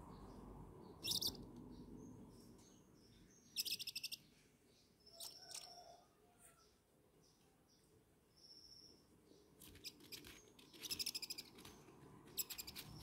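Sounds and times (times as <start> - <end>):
owl chick rasping call: 1.0 - 1.4
owl chick chirps: 1.0 - 1.5, 3.5 - 4.3, 5.0 - 6.0, 9.6 - 11.7, 12.3 - 13.0.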